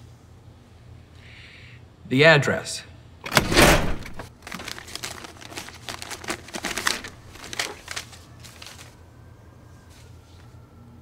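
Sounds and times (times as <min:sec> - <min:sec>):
metal drawer sliding open: 0:03.2 - 0:04.3
papers flicked through by hand: 0:04.0 - 0:09.0.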